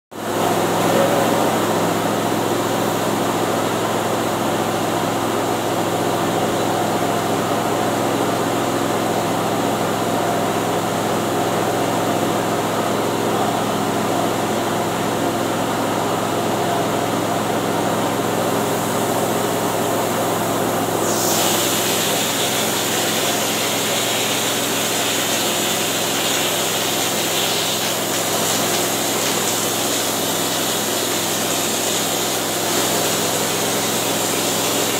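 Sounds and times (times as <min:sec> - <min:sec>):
air compressor running: 0:00.2 - 0:34.9
spray gun air hiss: 0:21.0 - 0:24.3.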